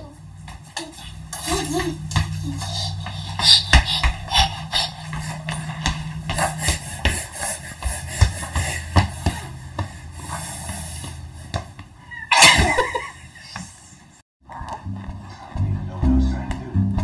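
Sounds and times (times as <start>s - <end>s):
low steady hum: 0.0s - 9.8s
irregular knocks and taps: 0.4s - 10.0s.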